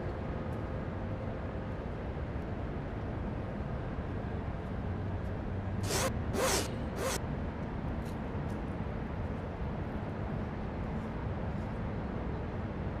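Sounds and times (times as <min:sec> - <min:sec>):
bag zipper pulled open: 0:05.8 - 0:07.2.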